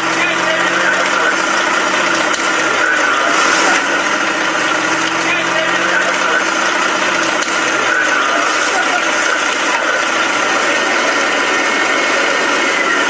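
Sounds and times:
large fire rushing: 0.0s - 13.0s
fire crackles: 0.8s - 10.8s.

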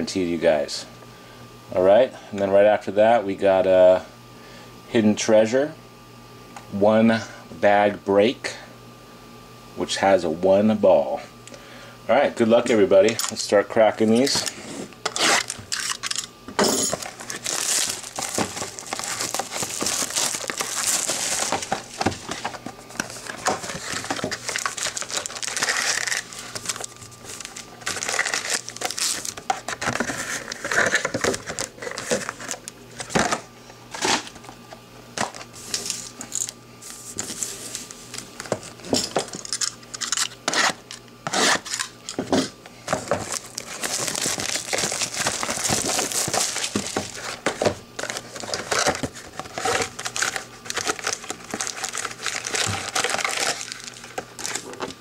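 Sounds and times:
plastic and foil wrapping crinkling: 16.9s - 33.2s, 35.3s - 38.8s, 42.9s - 55.0s.

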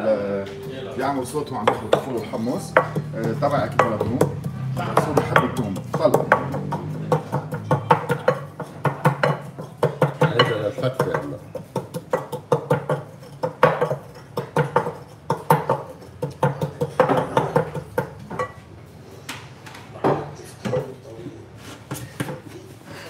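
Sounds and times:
wooden pestle knocking in bowl: 1.5s - 18.6s.

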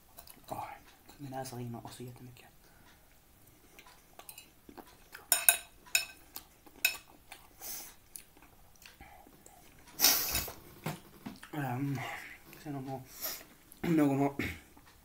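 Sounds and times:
open-mouthed chewing: 3.4s - 5.3s, 6.1s - 12.6s
nasal sniff: 7.6s - 8.0s, 10.0s - 10.5s, 13.1s - 13.5s.

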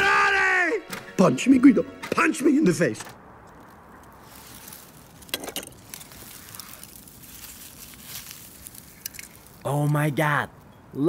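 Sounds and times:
faint outdoor hiss: 0.0s - 11.0s
dry grass rustling and crackling: 3.4s - 10.4s.

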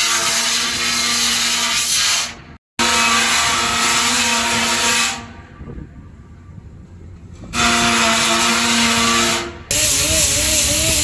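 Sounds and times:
deck scaling machine running: 9.5s - 11.0s.

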